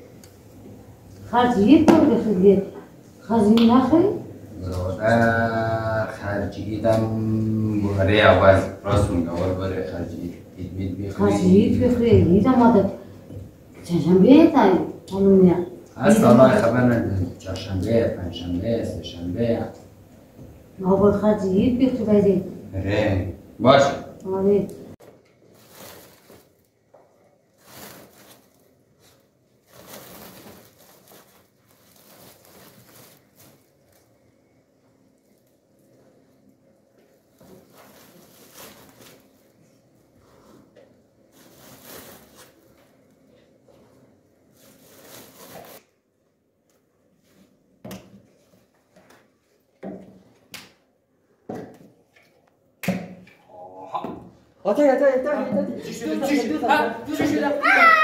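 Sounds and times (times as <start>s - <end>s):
plastic bag rustling and crinkling: 25.4s - 34.4s, 37.2s - 39.8s, 41.3s - 43.1s, 44.5s - 45.8s.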